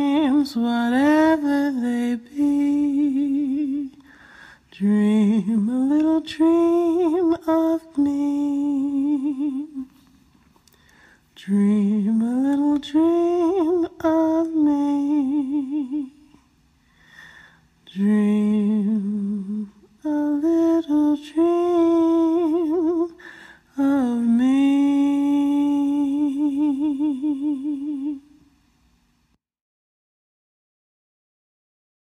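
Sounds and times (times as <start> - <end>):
person humming with vibrato: 23.8 - 28.2.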